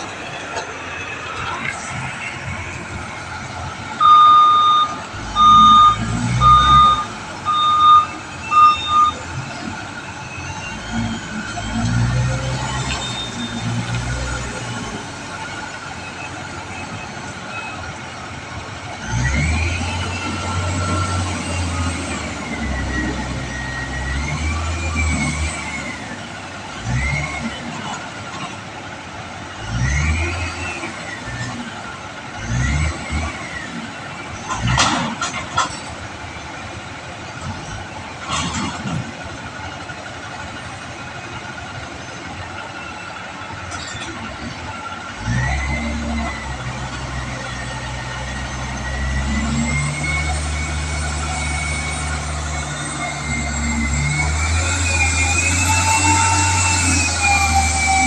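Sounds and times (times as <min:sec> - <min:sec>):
diesel engine revving: 0:00.0 - 0:58.0
hydraulic whine: 0:45.5 - 0:58.0.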